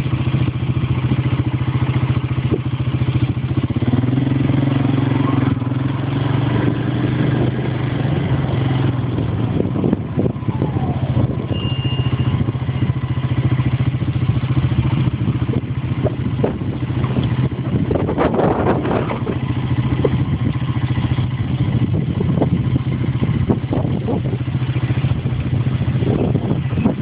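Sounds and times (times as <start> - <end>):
vehicle engine running at low revs: 0.0 - 27.0.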